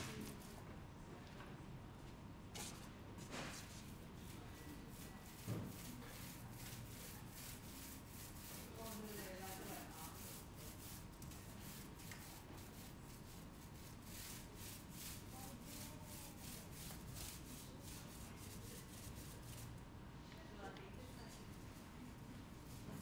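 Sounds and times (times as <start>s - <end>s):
paint roller rubbing on wall: 3.5s - 19.8s.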